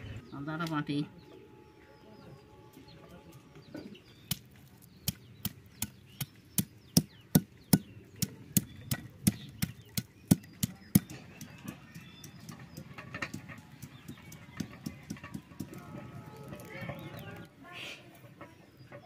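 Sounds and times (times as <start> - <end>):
stone pestle pounding: 4.3 - 15.9.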